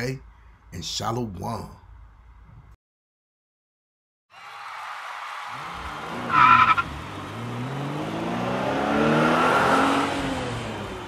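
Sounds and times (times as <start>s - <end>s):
tire squeal: 5.5s - 7.6s
car engine revving: 5.5s - 11.0s.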